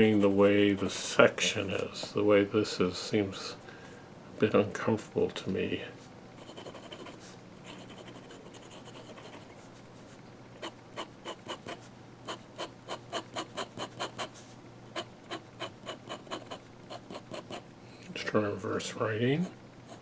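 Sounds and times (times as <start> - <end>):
pen nib scratching paper: 6.4 - 9.6, 10.6 - 17.6, 19.4 - 20.0.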